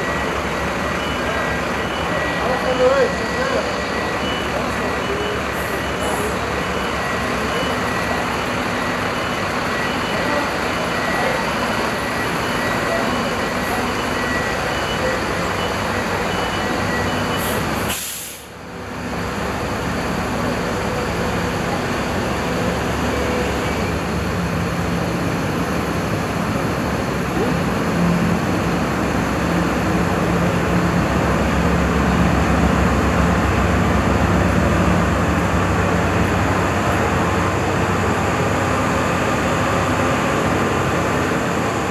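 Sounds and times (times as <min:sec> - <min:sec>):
faint high-pitched beeping: 0:00.0 - 0:17.6
machinery and engine din: 0:00.0 - 0:41.9.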